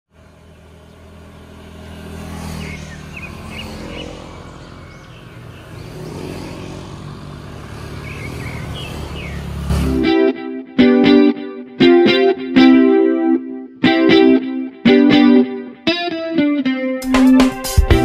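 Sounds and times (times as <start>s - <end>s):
motor scooters passing by: 0.1s - 11.6s.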